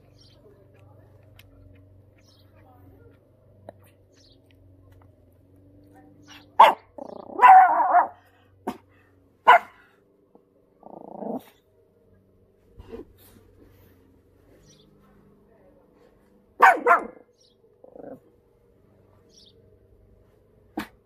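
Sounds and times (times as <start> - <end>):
small dog barking: 6.3 - 8.8, 9.4 - 9.9, 16.6 - 17.3.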